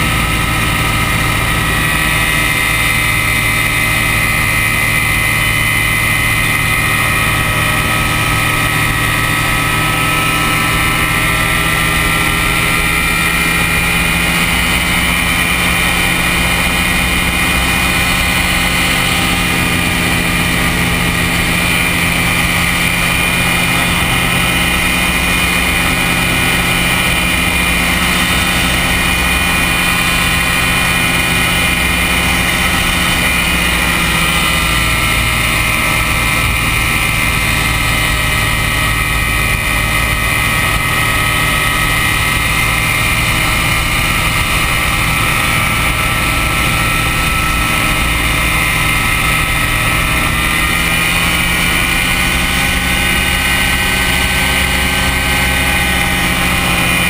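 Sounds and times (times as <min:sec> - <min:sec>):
ultralight aircraft engine droning: 0:00.0 - 0:57.0.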